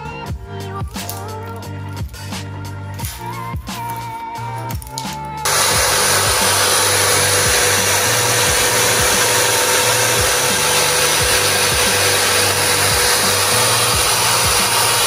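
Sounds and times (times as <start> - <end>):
electric drill motor whine: 5.4 - 15.0
sanding drum on resin: 5.5 - 15.0.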